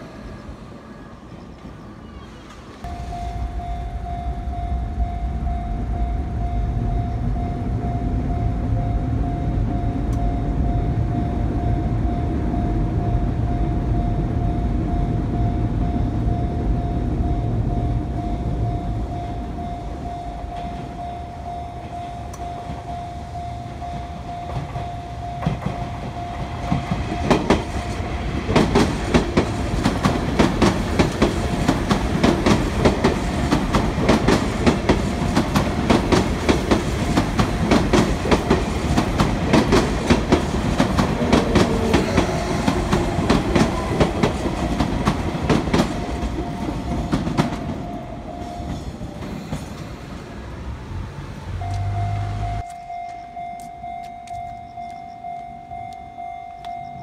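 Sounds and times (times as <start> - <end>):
level-crossing alarm tone: 2.8 - 49.6, 51.5 - 57.0
train wheels clacking over rails: 23.8 - 50.5.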